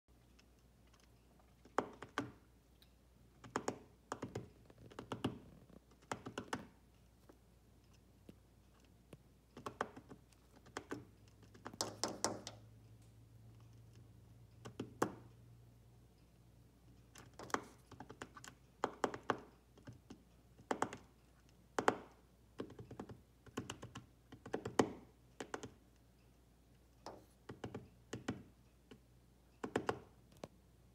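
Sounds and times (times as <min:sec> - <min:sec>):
beaks tapping on glass: 0:11.6 - 0:12.6.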